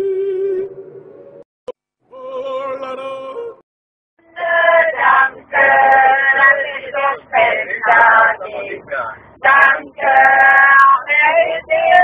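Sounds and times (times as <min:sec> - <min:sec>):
people singing unaccompanied: 0:04.2 - 0:12.0.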